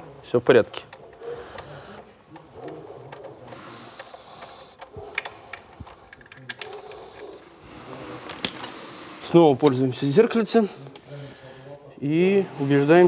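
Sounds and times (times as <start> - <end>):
faint clicks and rustling: 0.6 - 10.2.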